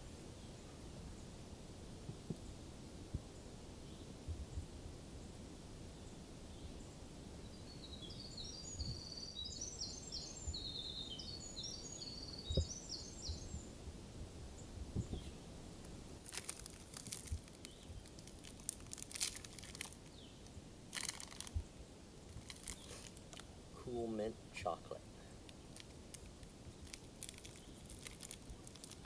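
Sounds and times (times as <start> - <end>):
songbird twittering: 6.0 - 13.7, 17.5 - 18.2
wrapper crinkling: 16.2 - 20.2, 20.9 - 21.6, 22.3 - 23.5, 25.4 - 29.0.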